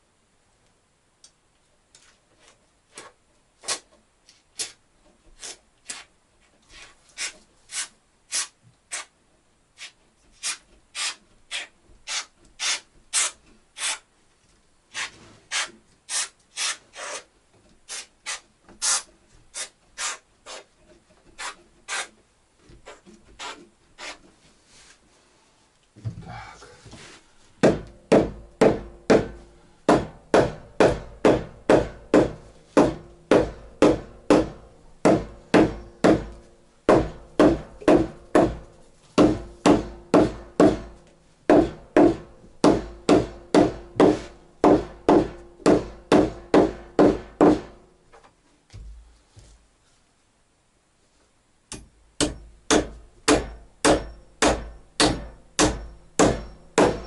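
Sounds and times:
hand tool striking wood: 27.6s - 47.8s, 51.7s - 57.0s.

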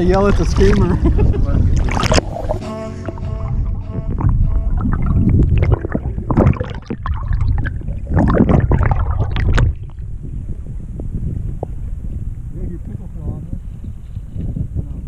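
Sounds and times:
water surges: 0.0s - 3.2s, 4.8s - 10.1s
underwater gurgling and sloshing: 0.0s - 12.5s
heavy low rumble: 0.9s - 13.9s.

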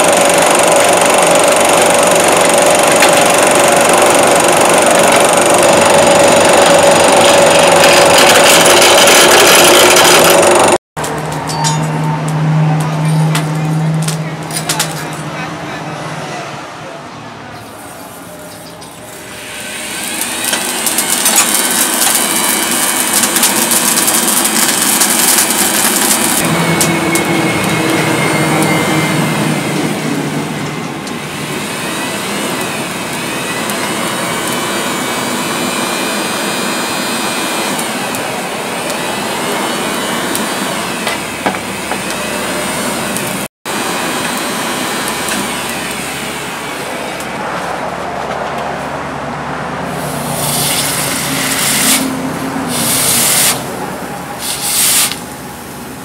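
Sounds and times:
air blower motor whine: 0.0s - 10.8s, 18.9s - 49.1s, 49.8s - 56.0s
charcoal crackling: 17.8s - 28.0s.

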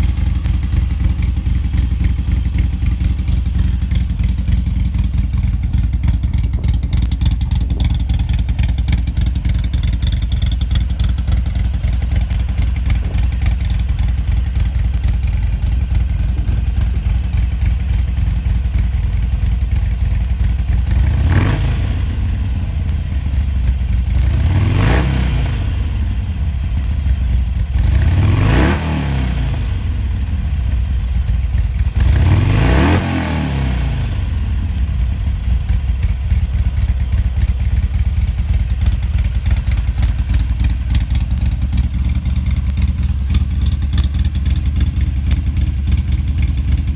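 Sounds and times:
motorcycle engine idling and revving: 0.0s - 46.9s.

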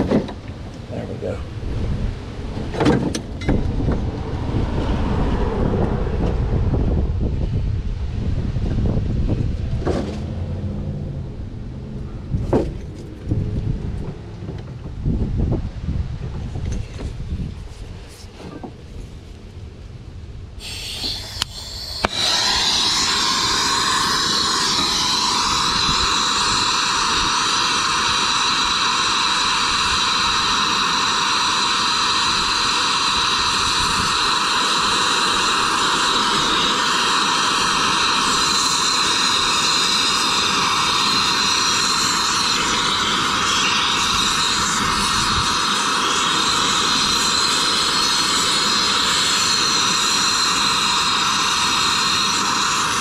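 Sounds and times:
torch flame hissing: 20.6s - 53.0s.

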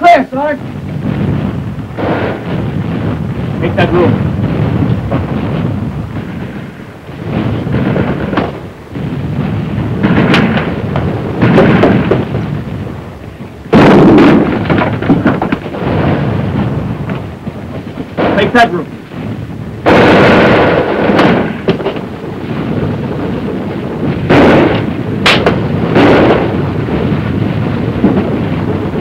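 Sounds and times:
explosions and gunfire rumble: 0.0s - 29.0s
loud blast: 0.0s - 29.0s.

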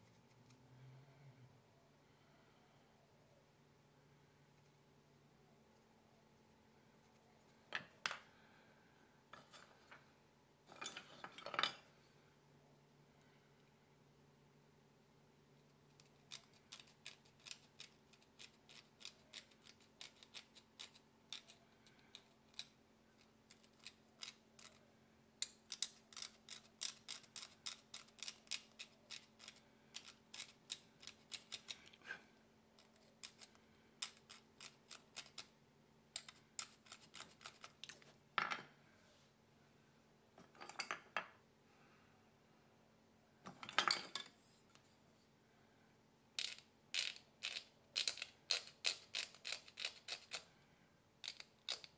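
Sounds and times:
carving tool scraping nut: 15.9s - 38.0s, 46.4s - 50.5s, 51.2s - 51.9s.

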